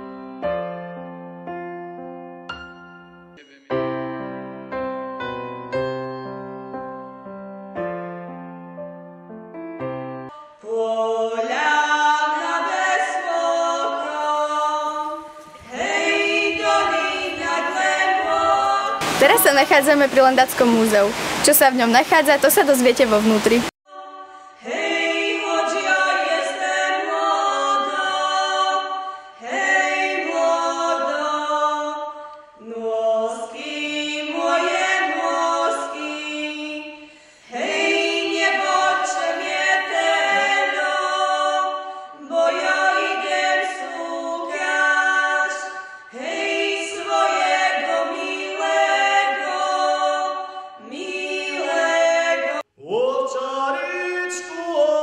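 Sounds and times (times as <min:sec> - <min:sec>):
unaccompanied choir singing: 0:10.3 - 0:20.0, 0:23.6 - 0:55.0.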